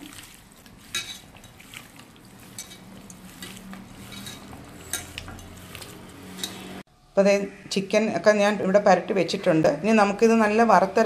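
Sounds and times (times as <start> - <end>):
hand mixing chicken: 0.0 - 6.8.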